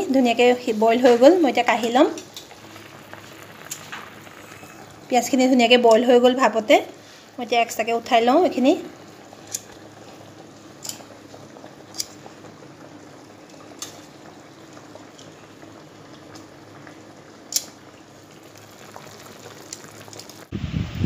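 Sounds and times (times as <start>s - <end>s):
gravy simmering in a wok: 0.2s - 20.5s.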